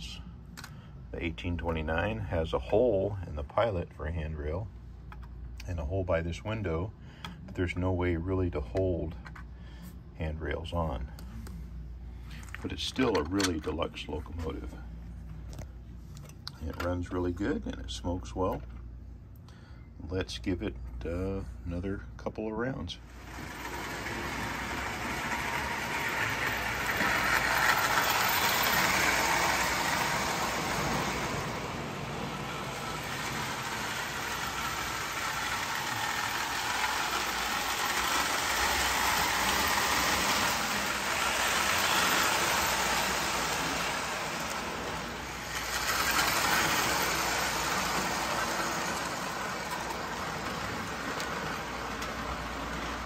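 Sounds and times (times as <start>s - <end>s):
toy train rumbling on track: 23.1s - 53.0s.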